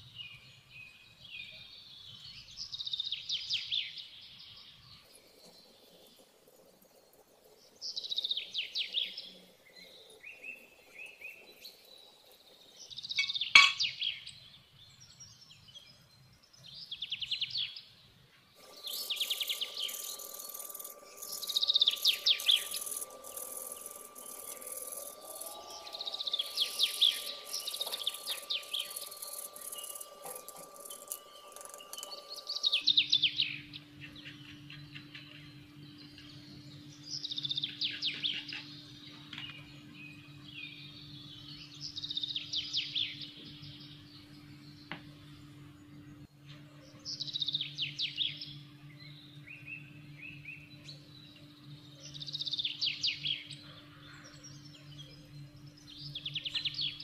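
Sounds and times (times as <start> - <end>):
birds chirping: 0.0 - 57.0
faint hum: 18.6 - 57.0.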